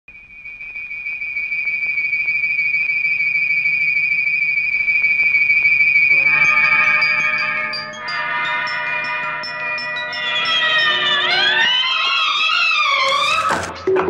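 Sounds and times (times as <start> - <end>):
high wavering whistle tone: 0.1 - 13.7
chime-like notes: 6.1 - 12.1.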